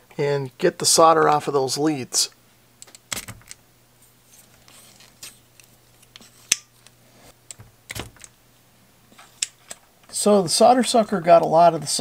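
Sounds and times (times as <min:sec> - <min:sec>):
light clicks and scrapes: 0:04.0 - 0:07.0.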